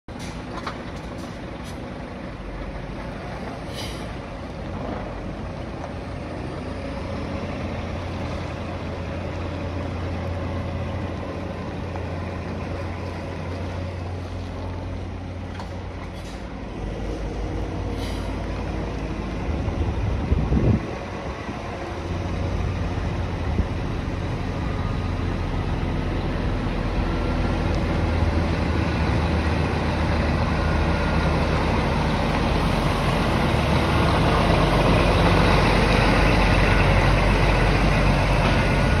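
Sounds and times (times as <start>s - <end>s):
truck diesel engine running: 0.1s - 39.0s
air brakes hissing: 3.6s - 4.2s, 16.0s - 16.6s, 17.8s - 18.5s.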